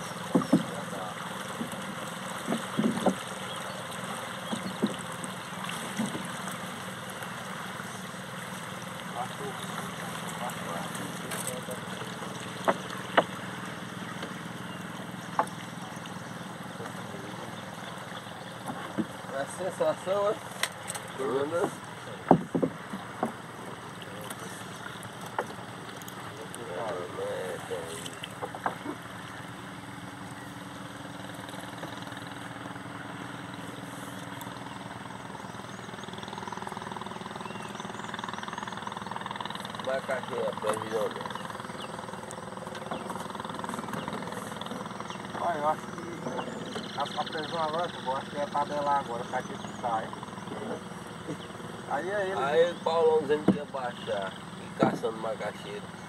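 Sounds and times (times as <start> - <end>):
small boat motor running: 0.0 - 56.0
water washing: 0.0 - 56.0
wind: 0.0 - 56.0
sharp knocks on wooden boat: 0.1 - 3.4, 4.4 - 6.4, 12.6 - 13.5, 15.3 - 15.9, 18.6 - 19.3, 21.6 - 23.5, 28.2 - 29.0, 53.4 - 53.8, 54.8 - 55.2
light knocks: 20.6 - 23.4.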